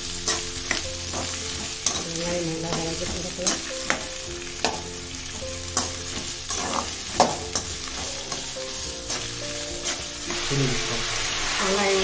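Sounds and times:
onions sizzling in oil: 0.0s - 12.0s
metal spoon clinking against pan: 0.2s - 4.9s, 5.8s - 10.1s.

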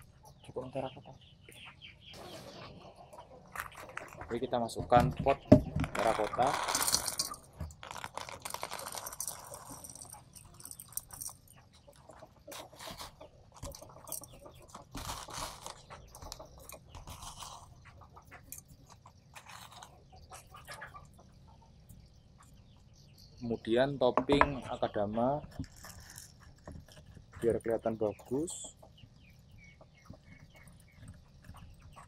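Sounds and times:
soil crunching by hand: 5.8s - 11.4s, 12.5s - 20.8s
dry grains pouring into pot: 6.0s - 11.3s.

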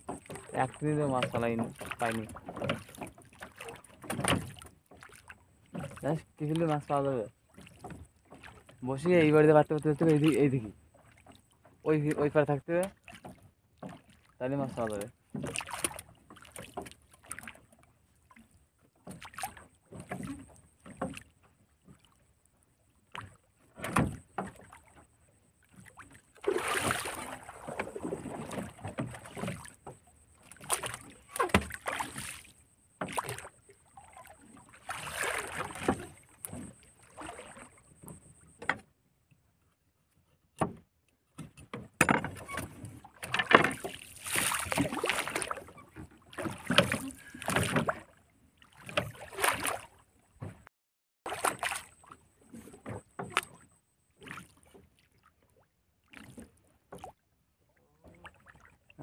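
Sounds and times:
knocks in wooden boat: 0.0s - 6.0s, 23.2s - 24.7s, 40.6s - 48.0s.

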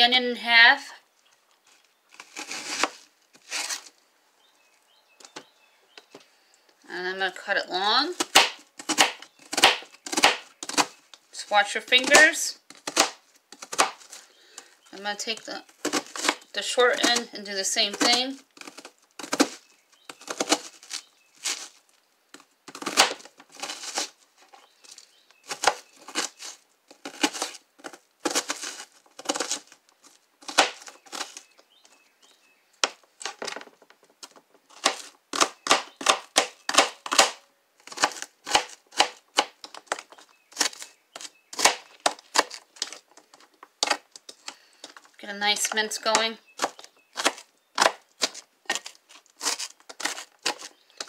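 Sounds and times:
knife chopping on plastic board: 8.2s - 11.0s.

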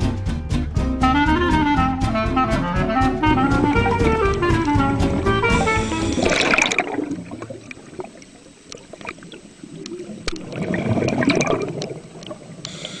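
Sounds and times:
background music: 0.0s - 7.4s
water trickling and gurgling: 4.0s - 13.0s.

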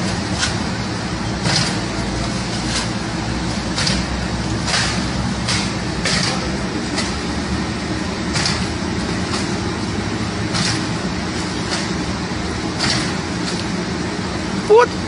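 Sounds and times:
low rumble of street noise: 0.0s - 15.0s.

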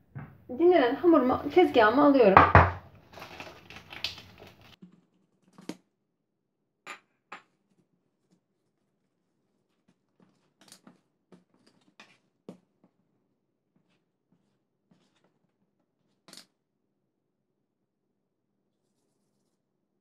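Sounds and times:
cling film rustling: 2.9s - 4.8s.

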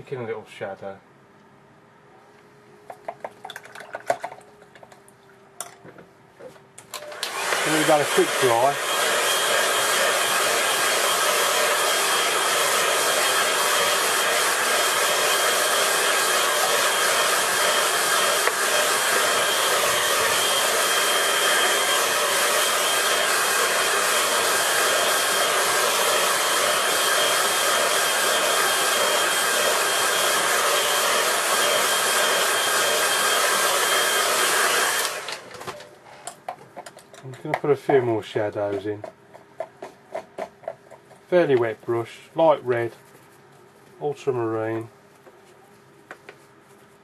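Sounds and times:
hair dryer blowing: 6.9s - 35.9s.

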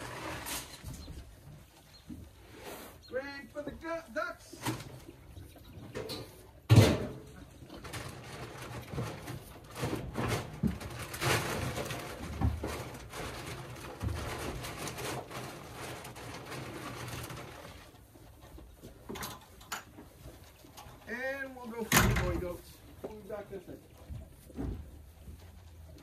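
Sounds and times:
goats knocking against trough: 5.9s - 15.3s.

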